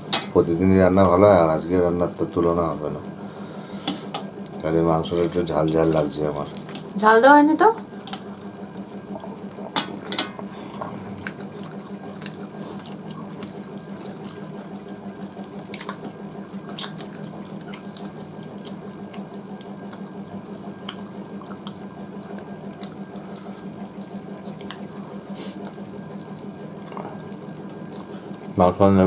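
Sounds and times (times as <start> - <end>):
wet chewing and mouth sounds: 3.8 - 7.0, 7.8 - 28.6
small clicks and smacks: 15.4 - 20.1, 20.8 - 23.3.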